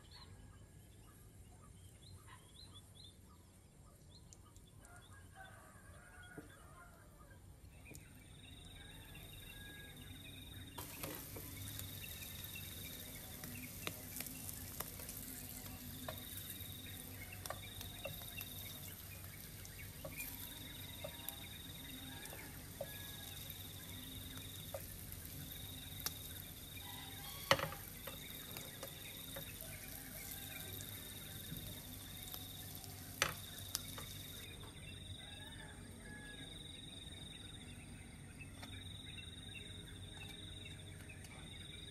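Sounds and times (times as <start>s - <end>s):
insect calling: 8.6s - 35.3s
fish frying in oil: 8.7s - 34.6s
tongs clicking against pan: 12.9s - 25.4s.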